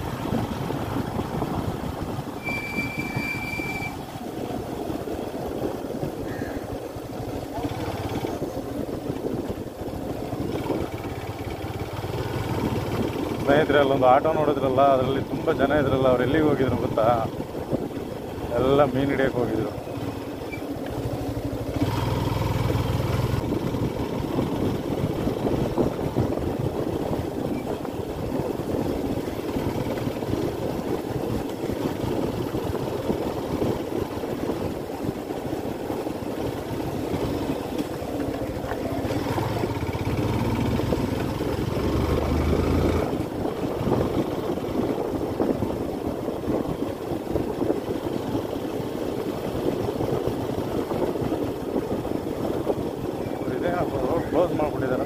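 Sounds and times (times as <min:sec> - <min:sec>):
motorcycle engine running: 0:00.0 - 0:55.0
wind rush on microphone: 0:00.0 - 0:55.0.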